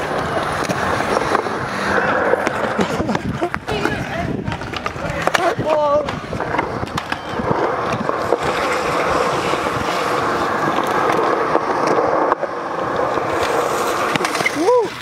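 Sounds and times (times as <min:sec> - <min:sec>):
skateboard wheels rolling on concrete: 0:00.0 - 0:15.0.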